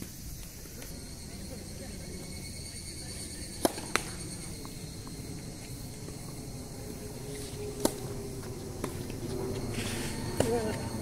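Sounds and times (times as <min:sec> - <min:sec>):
high-pitched insect chirring: 0:00.0 - 0:11.0
tennis racket striking ball: 0:03.6 - 0:04.1, 0:07.8 - 0:08.1, 0:08.8 - 0:09.1.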